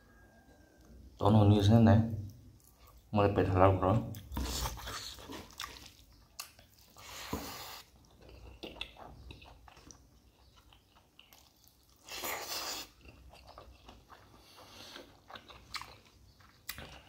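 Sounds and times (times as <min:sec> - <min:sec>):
close-up chewing: 0:04.1 - 0:17.0.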